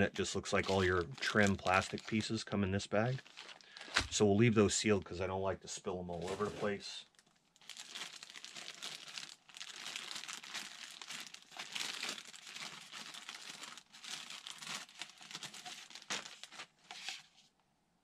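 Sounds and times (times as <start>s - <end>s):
plastic bag crinkling: 0.0s - 4.2s, 6.2s - 17.2s.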